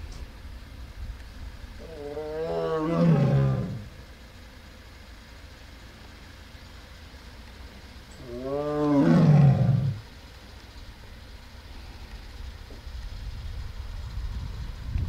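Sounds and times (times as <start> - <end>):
tiger roaring: 1.8 - 4.0, 8.2 - 10.1.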